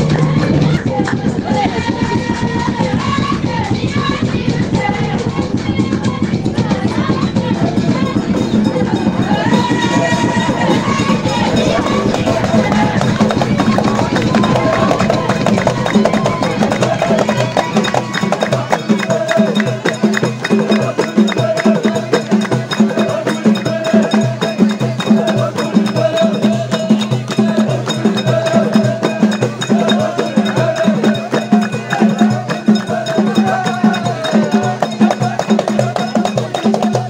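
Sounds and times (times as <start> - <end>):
drum beat: 0.0 - 37.0
voices chanting: 0.0 - 37.0
hands clapping in rhythm: 7.9 - 37.0.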